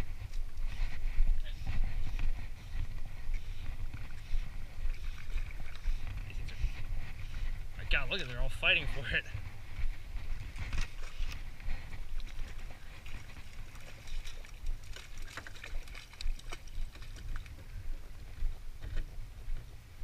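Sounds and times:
water lapping around boat: 0.0s - 20.0s
wind buffeting microphone: 0.0s - 20.0s
small clicks and ticks: 12.2s - 17.8s.

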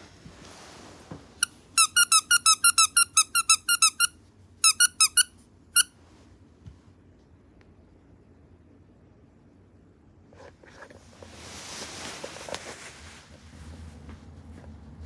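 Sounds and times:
cat ball toy chirping: 1.4s - 5.9s.

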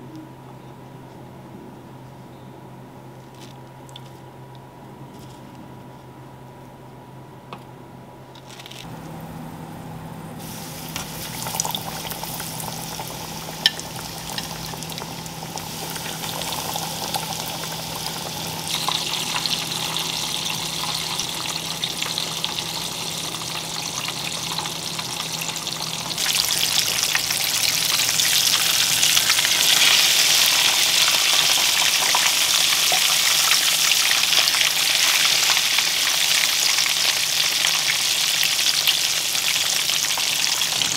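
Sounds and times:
low steady hum: 0.0s - 32.6s
fish frying in oil: 10.4s - 40.9s.

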